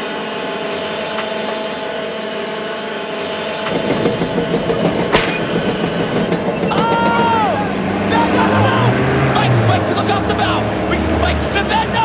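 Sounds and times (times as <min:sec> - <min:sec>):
deck machinery humming: 0:00.0 - 0:12.0
metallic clank: 0:03.6 - 0:07.4
hydraulic block rattling rumble: 0:03.6 - 0:12.0.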